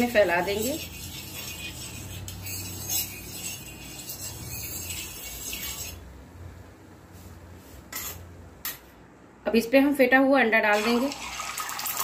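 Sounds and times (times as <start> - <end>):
spoon scraping hot iron griddle: 0.0 - 6.0.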